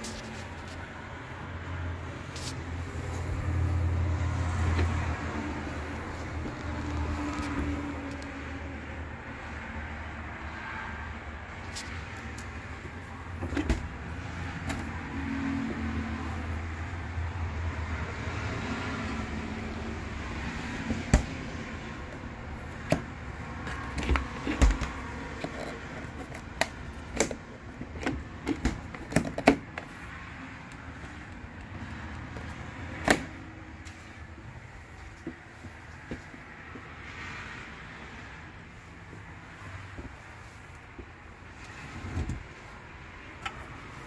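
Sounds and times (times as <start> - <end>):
refrigerator doors and drawers clicking: 13.0 - 14.9, 20.7 - 30.0.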